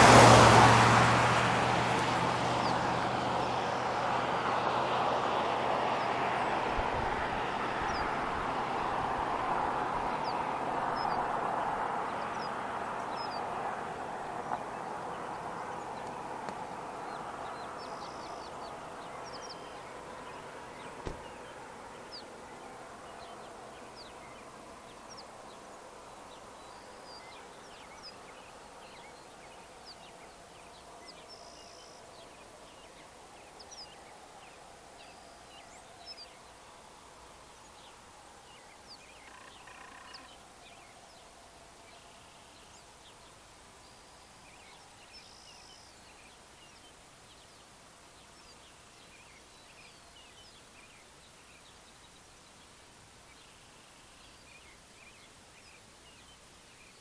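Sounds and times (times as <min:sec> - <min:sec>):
rushing vehicle noise: 0:00.0 - 0:30.9
birds chirping: 0:05.3 - 0:36.6, 0:37.6 - 0:57.0.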